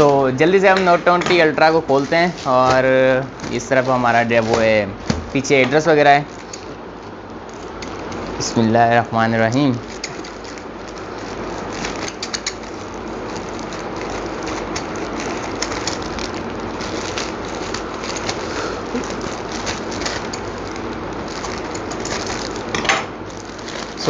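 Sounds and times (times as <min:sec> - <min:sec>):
plastic crinkling rustle: 0:00.0 - 0:24.0
scissors snipping plastic bag: 0:09.6 - 0:24.0.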